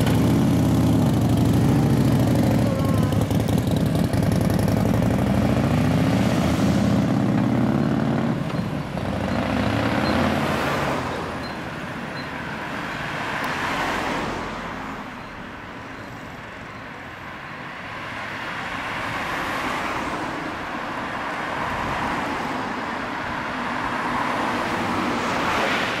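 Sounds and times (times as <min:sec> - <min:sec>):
motorcycle engine riding off: 0:00.0 - 0:10.4
vehicles passing: 0:00.0 - 0:26.0.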